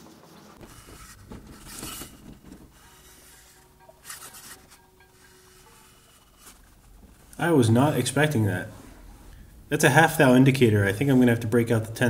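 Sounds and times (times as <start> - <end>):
metal vise scraping across plate: 0.6 - 6.8.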